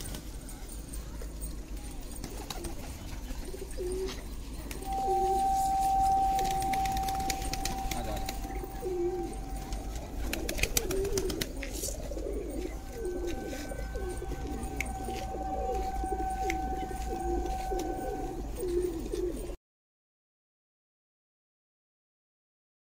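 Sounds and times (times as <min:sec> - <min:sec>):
pigeons cooing: 0:02.0 - 0:19.6
thin steady tone: 0:03.5 - 0:19.6.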